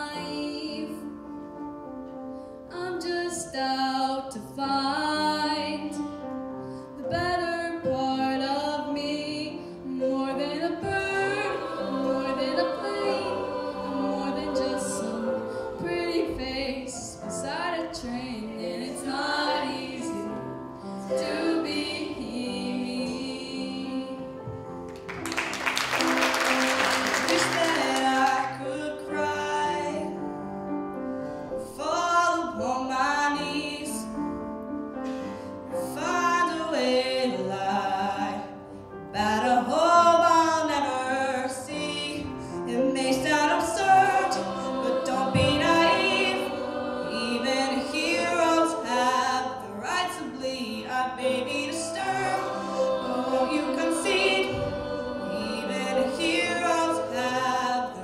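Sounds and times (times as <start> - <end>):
choir singing: 8.2 - 24.7, 25.3 - 30.2, 35.7 - 38.6, 39.2 - 58.0
instrumental accompaniment: 51.2 - 58.0.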